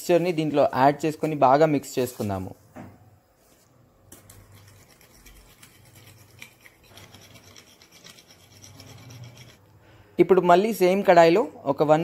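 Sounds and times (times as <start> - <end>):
spoon scraping glass bowl: 4.2 - 9.7.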